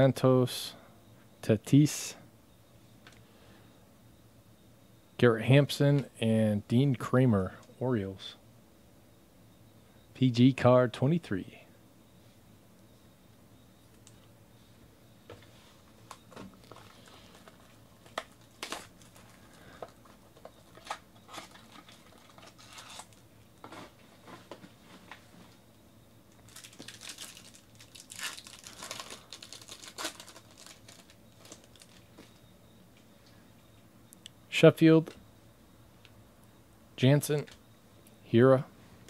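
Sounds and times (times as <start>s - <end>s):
plastic wrapper crinkling and tearing: 16.6s - 19.4s, 20.7s - 23.2s, 26.3s - 32.1s.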